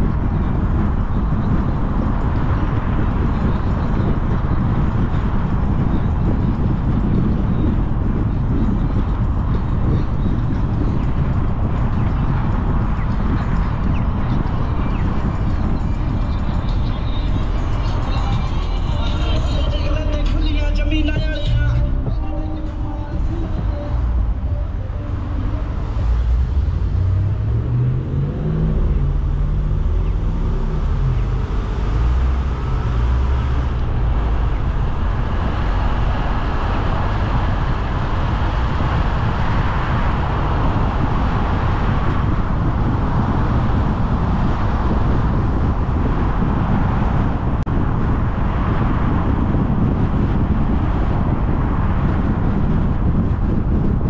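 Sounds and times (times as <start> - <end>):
tyre and road noise: 0.0 - 54.0
car engine rising in pitch: 12.3 - 53.6.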